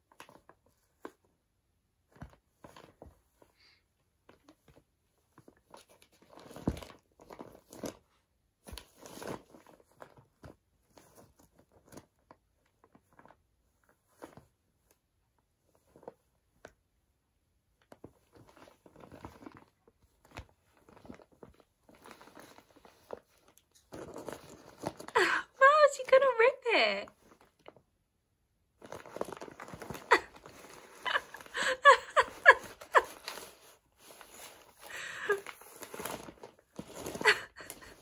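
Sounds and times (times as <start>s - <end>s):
paper crinkling and tearing: 28.8s - 38.0s.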